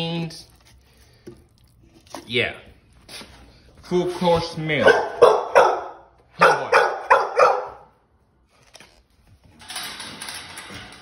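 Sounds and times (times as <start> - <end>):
young dogs barking: 4.8 - 7.9.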